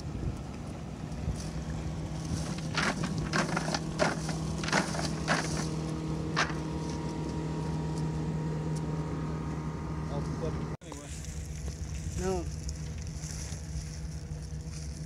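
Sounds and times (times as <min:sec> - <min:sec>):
boat motor idling: 0:00.0 - 0:15.0
net mesh rustling: 0:02.2 - 0:06.7.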